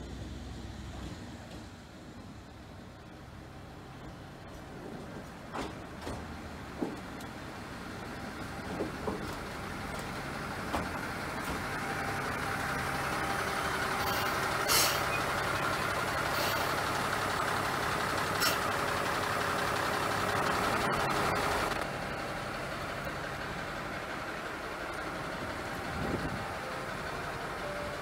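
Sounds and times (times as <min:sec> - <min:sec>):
diesel engine running: 0:00.0 - 0:28.0
short sharp hiss: 0:14.1 - 0:15.1.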